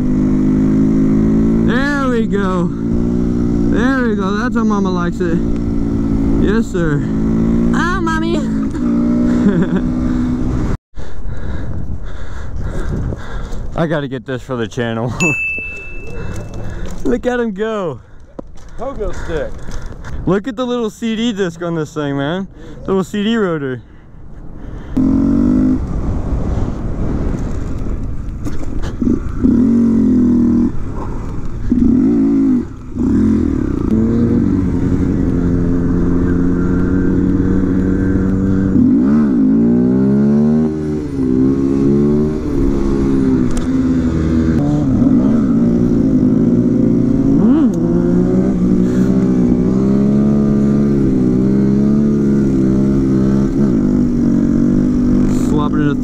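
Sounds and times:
small motorcycle engines revving: 0.0 - 10.7, 24.9 - 25.8, 28.5 - 56.0.

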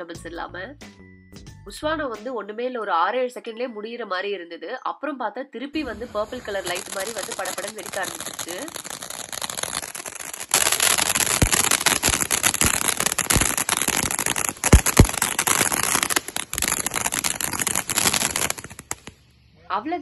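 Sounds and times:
firework fountain hissing and crackling: 5.8 - 19.2
sharp pops: 6.0 - 19.2.

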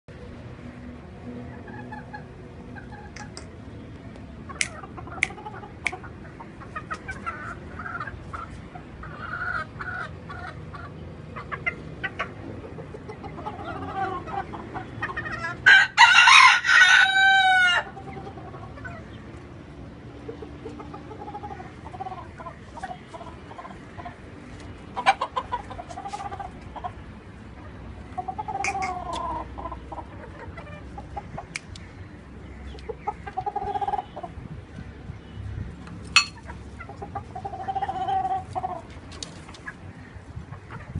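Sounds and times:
chickens clucking: 1.3 - 35.2, 35.8 - 40.9
rooster crowing: 15.6 - 17.9.

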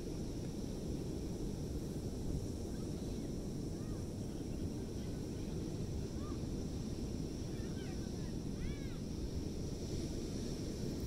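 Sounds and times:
wind: 0.0 - 11.0.

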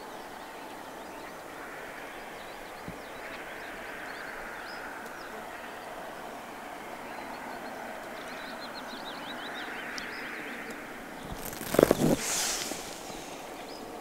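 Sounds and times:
small birds chirping: 7.0 - 14.0.

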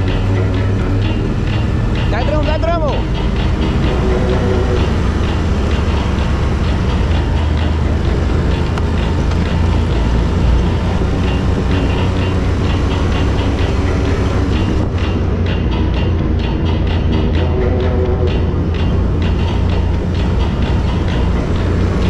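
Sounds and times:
quad bike engine running: 0.0 - 22.0
wheels on rough dirt track: 0.0 - 22.0
wind rumble: 0.0 - 22.0.

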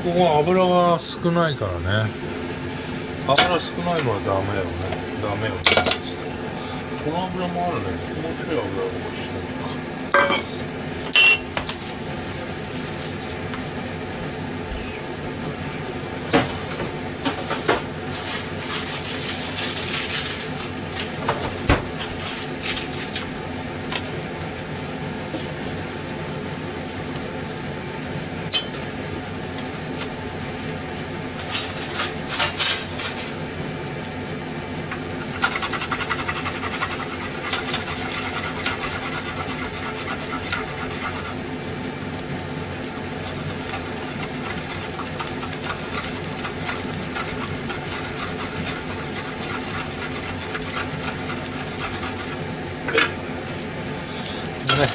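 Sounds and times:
steady background hum: 0.0 - 54.9
kitchenware clinking and clattering: 5.6 - 6.1, 10.2 - 11.4, 19.6 - 22.8, 31.4 - 33.4, 52.9 - 53.2
water running from a tap: 17.5 - 24.1, 31.4 - 54.9.

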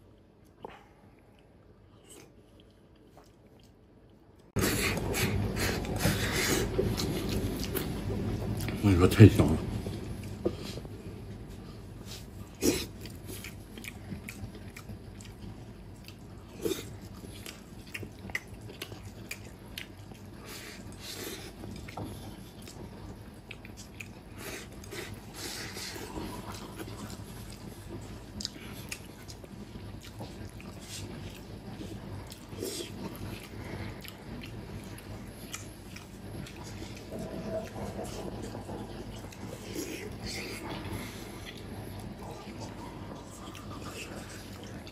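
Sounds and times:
wet chewing and smacking: 0.1 - 8.8, 9.8 - 44.9
man slurping: 4.6 - 7.7.

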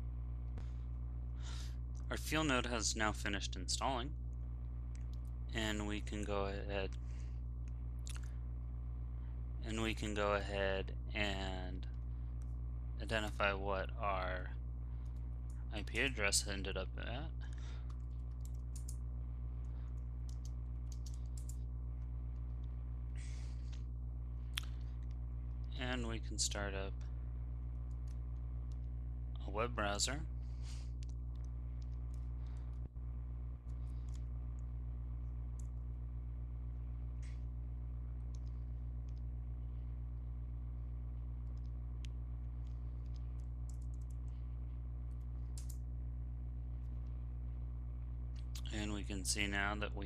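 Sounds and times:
low electrical hum: 0.0 - 50.0.

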